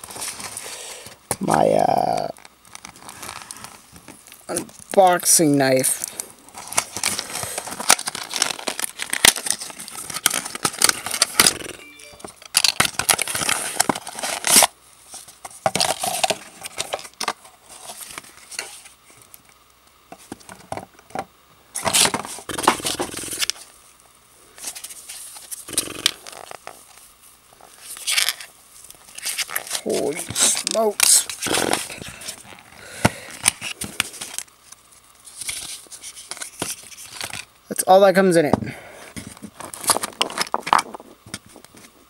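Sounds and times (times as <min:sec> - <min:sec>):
cardboard and tape tearing: 0:01.4 - 0:03.8, 0:06.0 - 0:11.8, 0:12.6 - 0:14.8, 0:21.8 - 0:23.7, 0:27.8 - 0:32.6, 0:39.3 - 0:41.2
paper packing crinkling: 0:02.2 - 0:05.1, 0:05.7 - 0:19.3, 0:27.6 - 0:37.5, 0:39.1 - 0:42.0.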